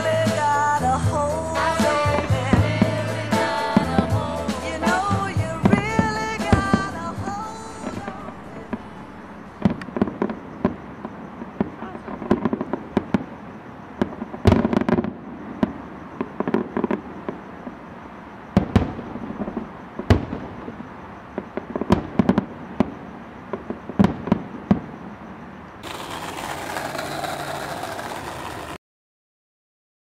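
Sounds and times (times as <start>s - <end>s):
fireworks bursting: 0.0s - 17.6s, 25.8s - 28.8s
steady hiss-like noise: 0.0s - 28.7s
fireworks crackling and rumbling: 0.1s - 17.7s, 18.5s - 28.8s.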